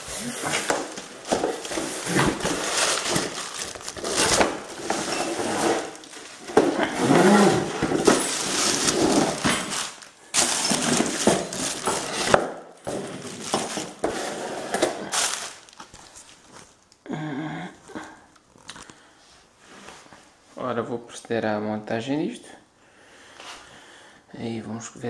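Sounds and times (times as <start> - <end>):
bubble wrap crinkling: 0.0 - 17.0.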